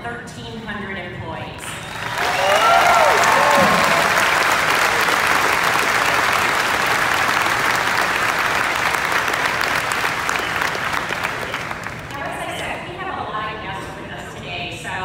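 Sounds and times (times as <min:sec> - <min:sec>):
crowd applauding: 0:01.8 - 0:12.3.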